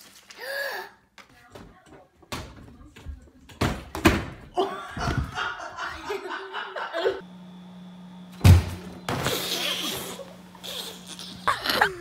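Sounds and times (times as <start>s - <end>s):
person laughing: 4.6s - 7.2s, 9.4s - 12.0s.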